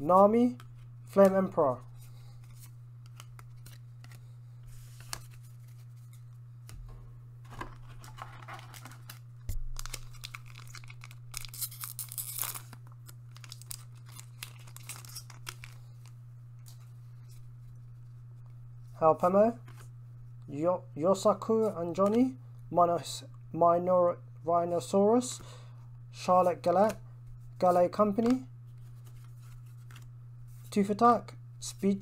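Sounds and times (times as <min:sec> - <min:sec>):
low hum: 0:00.0 - 0:21.1
card handling: 0:00.5 - 0:17.4
foil pack tearing: 0:07.6 - 0:15.8.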